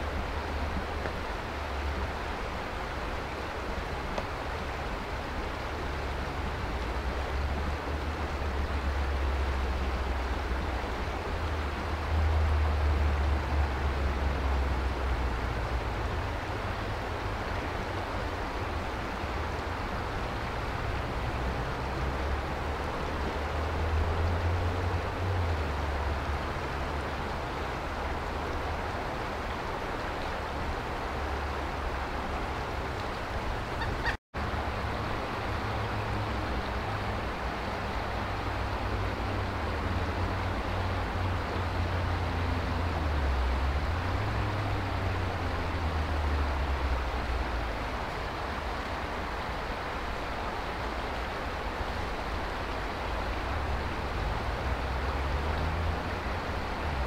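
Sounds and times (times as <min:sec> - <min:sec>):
rushing outdoor background noise: 0:00.0 - 0:57.0.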